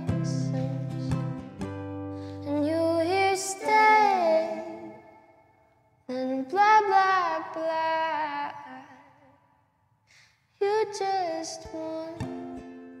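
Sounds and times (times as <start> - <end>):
woman singing softly: 0.0 - 1.2, 2.4 - 5.0, 10.6 - 12.5
ukulele: 0.0 - 5.2, 10.6 - 13.0.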